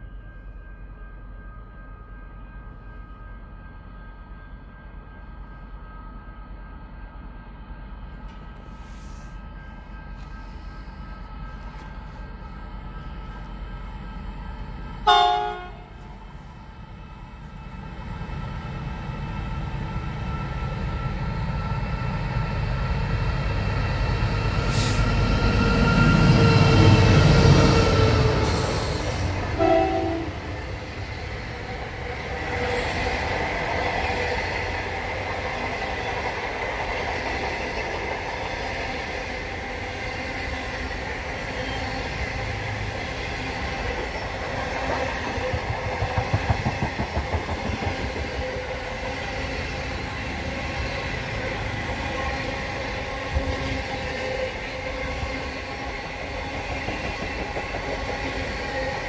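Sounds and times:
train wheels rumbling on rails: 8.0s - 59.0s
rhythmic clickety-clack: 43.8s - 49.2s, 55.5s - 59.0s.

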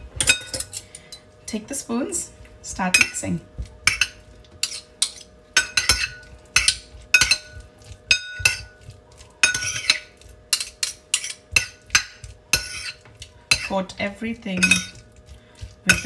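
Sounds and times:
metal scraping on ceramic bowl: 3.9s - 13.9s, 14.5s - 16.0s.

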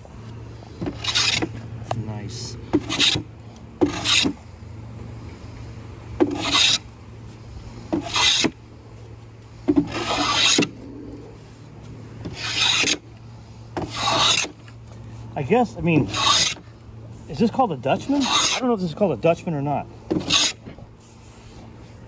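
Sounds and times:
hand plane shaving wood: 0.9s - 1.6s, 2.8s - 3.2s, 3.8s - 4.4s, 6.2s - 6.8s, 8.0s - 8.6s, 9.8s - 10.7s, 12.3s - 13.0s, 13.8s - 14.6s, 16.0s - 16.7s, 17.4s - 18.8s, 20.1s - 20.7s.

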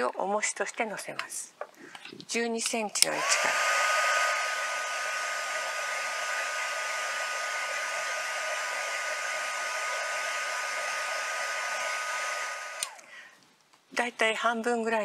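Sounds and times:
heat gun blowing with high whine: 3.0s - 13.1s.

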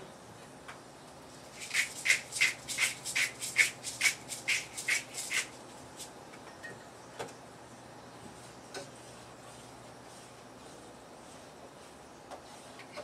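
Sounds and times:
pepper mill grinding: 1.5s - 6.1s.

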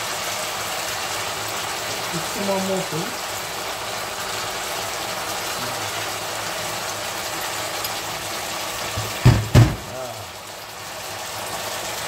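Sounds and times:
food sizzling in a frying pan: 0.0s - 12.0s
dull thumps: 8.9s - 9.9s.

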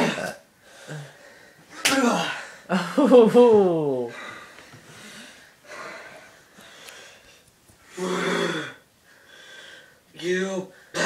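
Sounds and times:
person groaning: 1.9s - 4.4s, 8.0s - 8.8s
person breathing hard: 4.1s - 10.1s.

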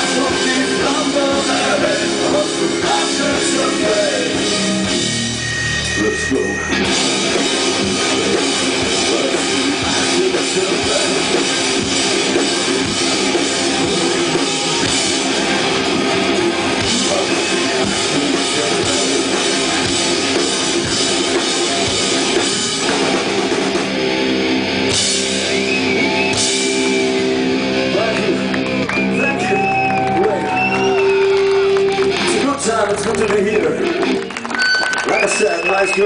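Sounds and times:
distorted electric guitar: 0.0s - 36.0s
drum kit: 0.0s - 36.0s.

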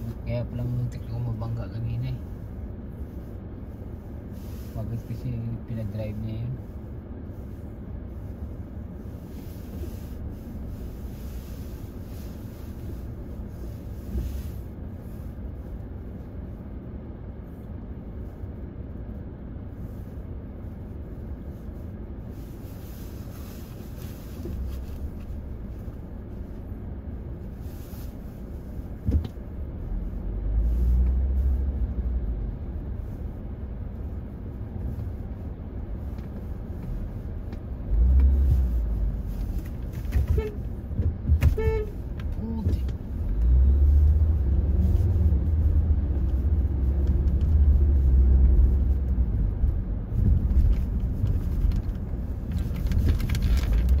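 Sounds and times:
car engine and road noise: 0.0s - 54.0s
car horn honks: 40.2s - 40.7s, 41.4s - 42.0s.

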